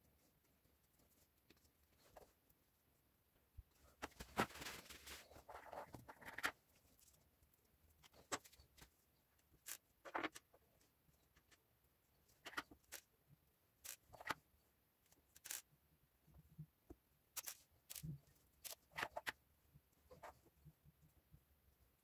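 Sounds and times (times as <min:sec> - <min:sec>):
small metal parts clicking: 0:15.4 - 0:15.6, 0:17.4 - 0:19.1.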